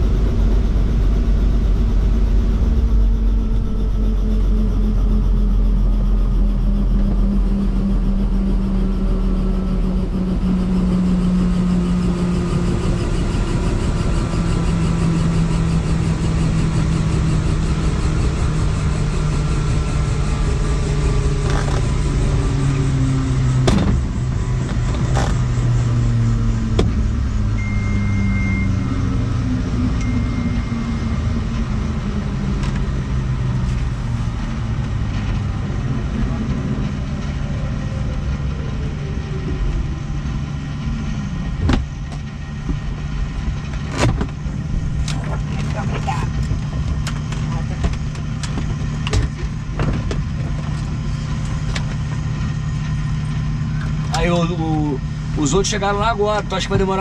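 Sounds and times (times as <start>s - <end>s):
helicopter engine winding down: 0.0s - 57.0s
high beep: 27.6s - 29.1s, 29.9s - 31.1s.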